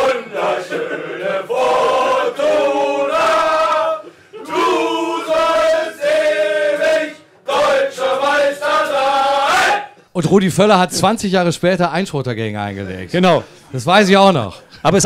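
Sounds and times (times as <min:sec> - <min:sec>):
voices chanting in chorus: 0:00.0 - 0:09.9.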